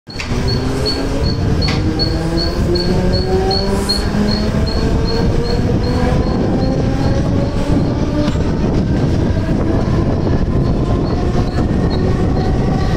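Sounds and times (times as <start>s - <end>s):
short high beeps: 0.1s - 6.8s
train motors whining: 0.1s - 12.9s
train wheels rumbling: 0.1s - 12.9s.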